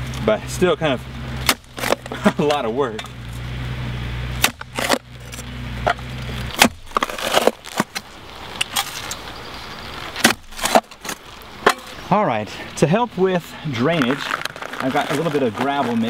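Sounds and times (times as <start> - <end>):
low steady rumble: 0.0 - 16.0
sharp knocks and scrapes: 1.4 - 3.5, 4.4 - 9.2, 10.2 - 12.1.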